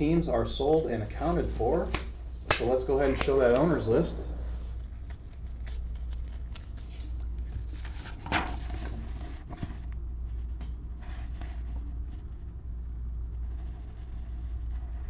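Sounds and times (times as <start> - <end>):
steady low hum: 0.0 - 15.0
paper rustling: 2.6 - 12.3.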